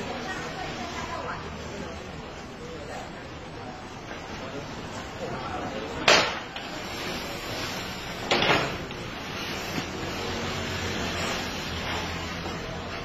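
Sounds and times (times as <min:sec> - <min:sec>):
steady background noise: 0:00.0 - 0:13.0.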